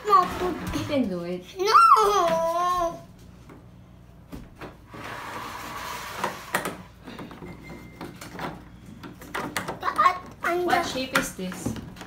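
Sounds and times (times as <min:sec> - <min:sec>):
plastic parts scraping and knocking: 0:05.0 - 0:12.0.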